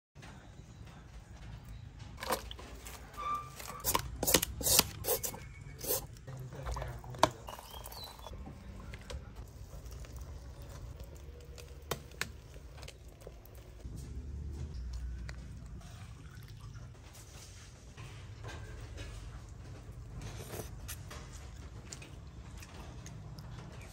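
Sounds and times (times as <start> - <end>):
food preparation clicks and scrapes: 2.2 - 13.9.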